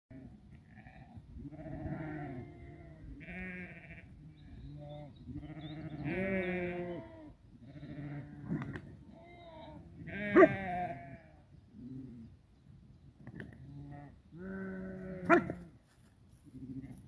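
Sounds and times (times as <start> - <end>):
sheep bleating: 0.1 - 11.4, 13.8 - 15.7.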